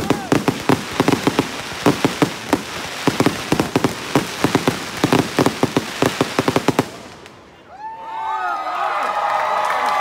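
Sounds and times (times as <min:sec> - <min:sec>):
fireworks popping and banging: 0:00.0 - 0:07.3.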